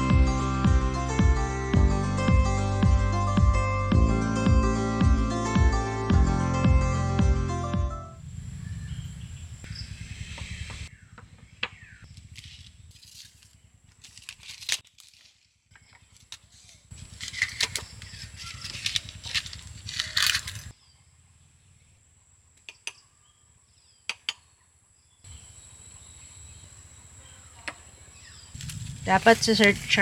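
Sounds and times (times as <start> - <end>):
paper crinkling and rustling: 12.2 - 20.7, 28.6 - 30.0
scissors cutting paper: 12.4 - 15.4, 16.2 - 20.7.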